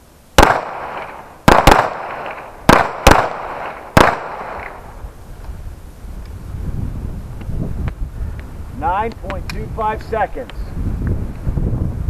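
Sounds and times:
pistol shots echoing: 0.4s - 4.8s.

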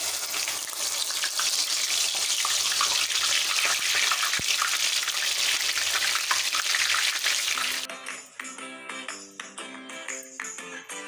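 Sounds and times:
okra deep-frying in oil: 0.0s - 7.9s.

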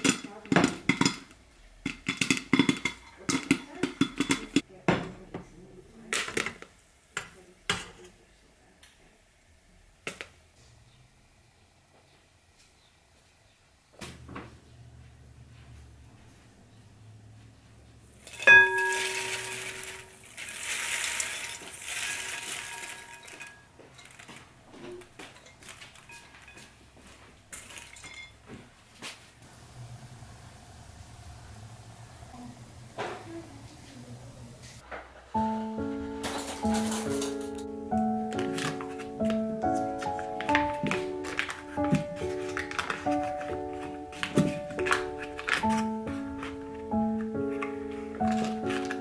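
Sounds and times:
popcorn popping in a pot: 0.0s - 4.7s, 6.1s - 8.0s, 18.2s - 26.5s
popcorn pouring into bowl: 18.2s - 26.2s, 27.5s - 28.0s, 48.2s - 49.0s.

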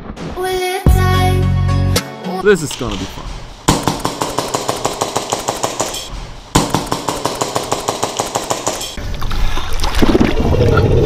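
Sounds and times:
airsoft pistol firing rapidly: 3.7s - 9.0s.

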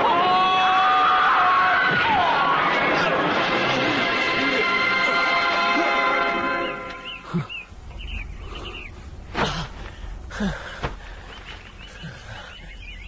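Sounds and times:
small birds chirping: 6.6s - 13.0s.

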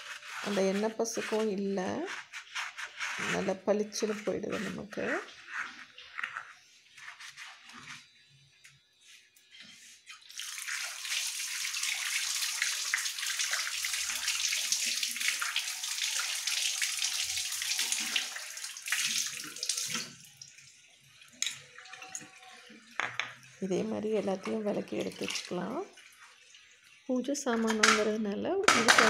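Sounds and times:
tap water running and splashing: 10.1s - 29.0s.

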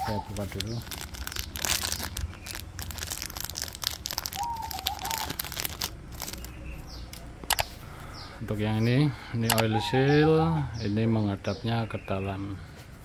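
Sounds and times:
bird cooing: 0.0s - 0.5s, 4.3s - 5.5s
plastic packet crinkling and tearing: 0.0s - 6.6s.

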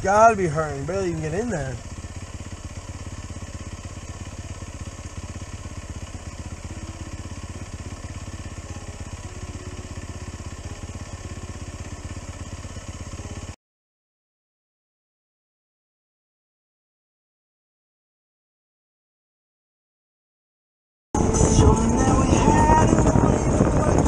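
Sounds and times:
engine idling: 0.0s - 13.6s, 21.2s - 24.0s.

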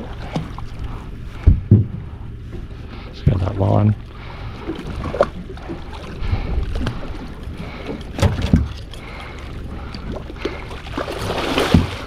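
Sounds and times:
low wind rumble: 0.0s - 12.0s
water slapping against hull: 0.0s - 12.0s
knocks on boat: 1.4s - 2.1s, 7.9s - 8.8s, 11.6s - 12.0s.

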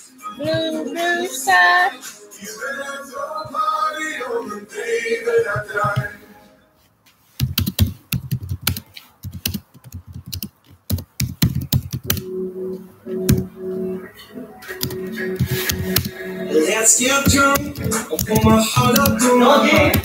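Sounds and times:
song playing: 0.0s - 6.6s, 12.1s - 20.0s
music with held notes: 12.1s - 20.0s.

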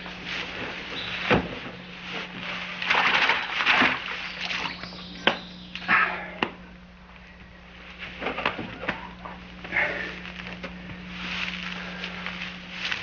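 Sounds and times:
low steady hum: 0.0s - 13.0s
water sloshing and splashing: 2.8s - 4.9s.

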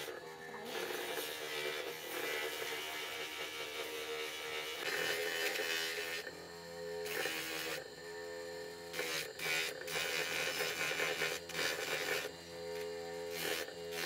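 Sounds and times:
wood sanding hiss: 0.0s - 6.3s, 7.0s - 14.0s
bench sander motor humming: 0.0s - 14.0s.

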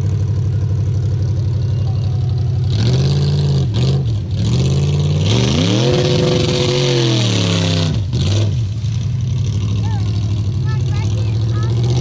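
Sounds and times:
engine revving hard: 2.6s - 12.0s.

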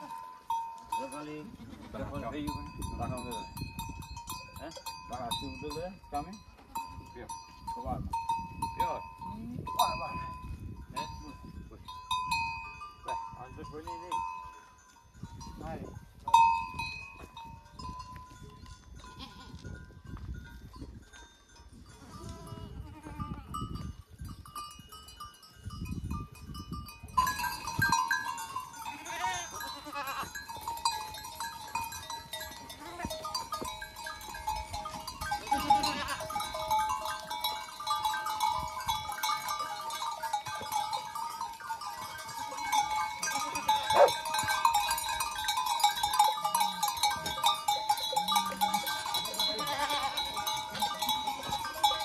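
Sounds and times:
goats and sheep bleating: 1.4s - 2.4s, 19.0s - 19.7s, 21.9s - 23.7s, 28.2s - 31.0s, 32.4s - 34.0s, 34.7s - 38.0s, 39.3s - 45.2s, 45.8s - 52.0s.

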